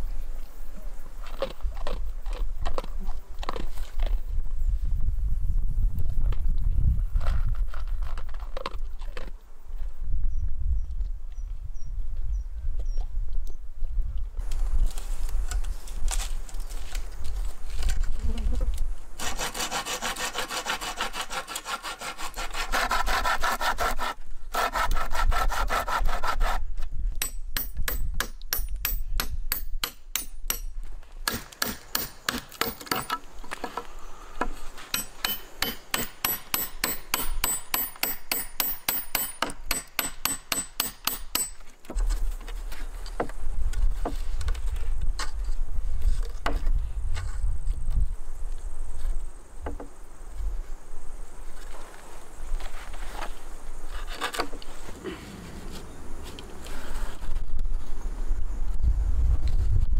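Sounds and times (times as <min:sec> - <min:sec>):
knife scraping wood: 0:14.8 - 0:26.7, 0:52.6 - 0:57.4
rough rubbing of wood: 0:16.8 - 0:26.7, 0:51.7 - 0:57.4.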